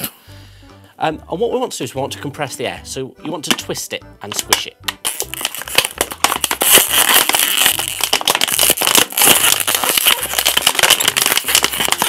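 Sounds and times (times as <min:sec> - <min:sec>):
plastic bottle crinkling: 0:04.3 - 0:12.0.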